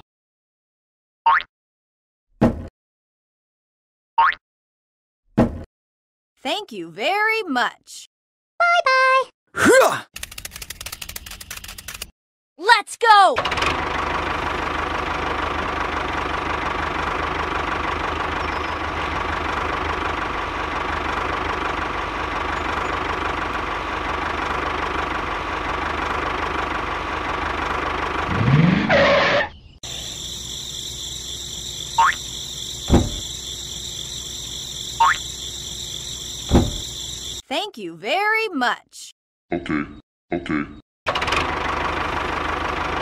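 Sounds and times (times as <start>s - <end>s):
model tractor engine whining: 13.4s - 28.5s, 41.1s - 43.0s.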